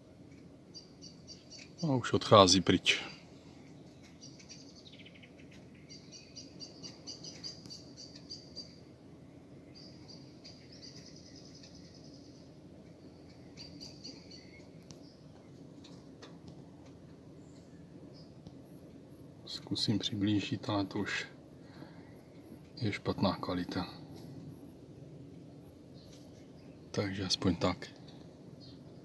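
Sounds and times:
songbirds singing trilled phrases: 0.3s - 29.0s.

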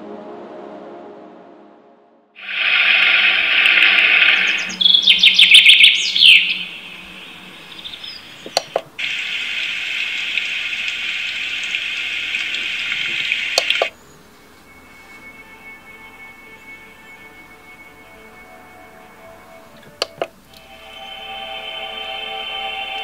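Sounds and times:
bird chirps: 2.4s - 10.6s
running-water sound from speaker: 2.4s - 14.0s
white noise hiss: 2.4s - 23.0s
sharp clicks: 8.4s - 8.9s, 12.4s - 14.0s, 19.8s - 20.6s.

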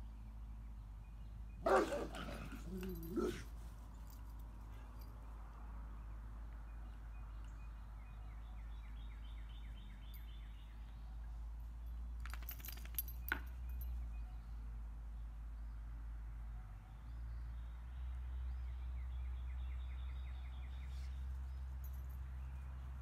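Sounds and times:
metallic jingling clicks: 2.2s - 5.2s, 12.2s - 14.0s.

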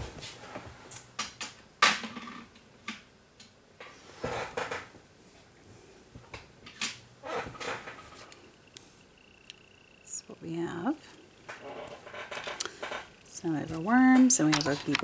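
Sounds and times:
small objects rattling: 11.5s - 13.1s, 13.7s - 15.0s.

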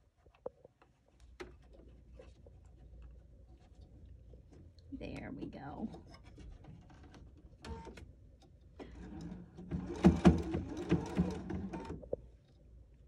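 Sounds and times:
sewing machine running: 9.0s - 12.0s.

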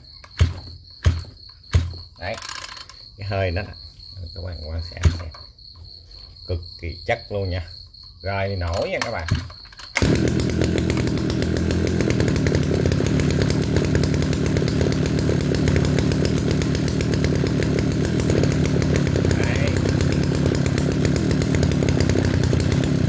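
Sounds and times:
brush cutter engine idling: 8.8s - 23.0s.

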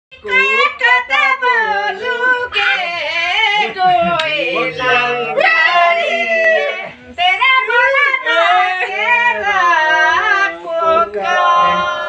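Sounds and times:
high-pitched voice singing: 2.4s - 3.0s.

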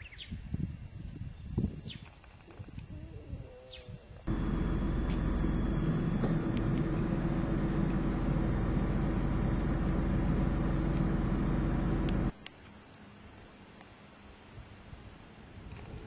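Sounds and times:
car engine running: 4.3s - 12.3s.

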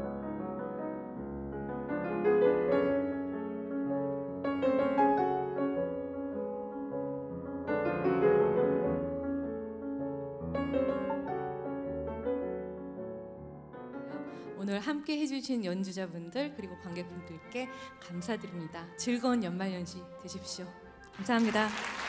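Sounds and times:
slow piano chords: 0.0s - 14.8s.

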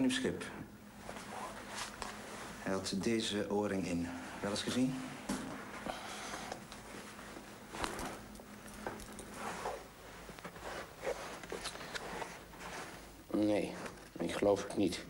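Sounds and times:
clothing rustle: 0.9s - 3.2s, 4.0s - 14.5s.

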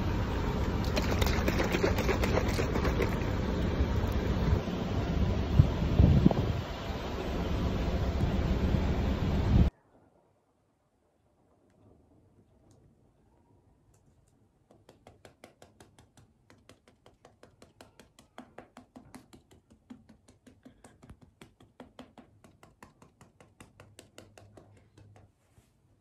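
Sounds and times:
fingertips tapping on face: 14.7s - 25.4s.

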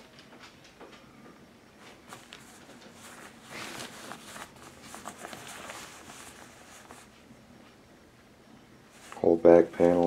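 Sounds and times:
hand rubbing fleece fabric: 2.0s - 7.3s.

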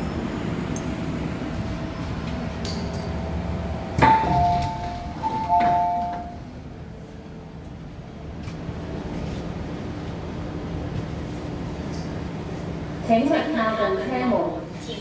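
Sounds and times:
low rumble of standing train: 0.0s - 15.0s
sharp door clunk: 4.0s - 6.4s
two-note high-low door chime: 4.0s - 6.4s.

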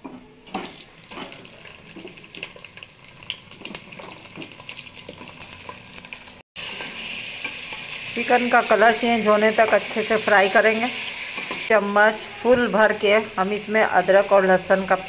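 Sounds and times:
chicken sizzling in hot oil: 0.4s - 11.7s
oil crackles and pops: 0.5s - 6.4s.

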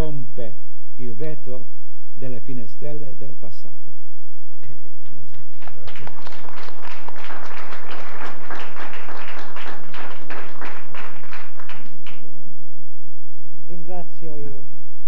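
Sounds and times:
audience applauding: 5.0s - 12.4s.

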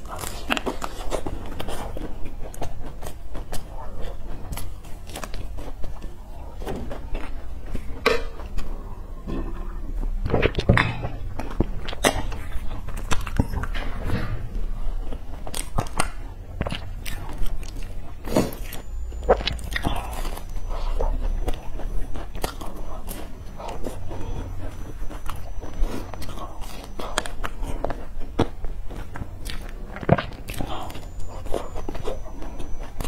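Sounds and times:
chewing flaky pastry: 0.0s - 33.0s.

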